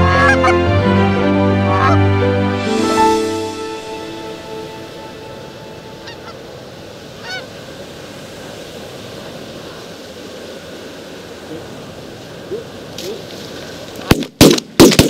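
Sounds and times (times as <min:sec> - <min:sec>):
geese honking: 0:00.0 - 0:07.6.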